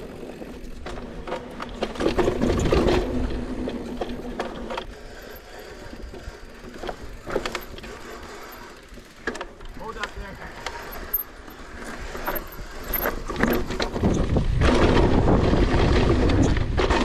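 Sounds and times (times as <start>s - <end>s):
bike rattling and knocking: 0.0s - 17.0s
tyre noise on dirt: 0.0s - 17.0s
bike freehub ratchet buzzing: 4.8s - 13.3s.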